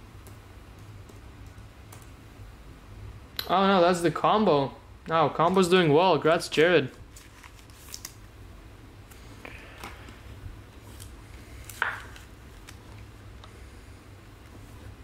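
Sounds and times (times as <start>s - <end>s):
trading cards rustling and clicking: 7.1s - 8.2s, 10.8s - 13.1s.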